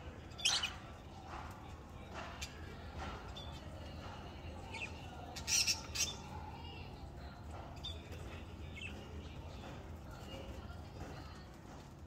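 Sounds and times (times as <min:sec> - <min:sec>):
parrots chirping: 0:00.3 - 0:01.0, 0:04.6 - 0:06.3.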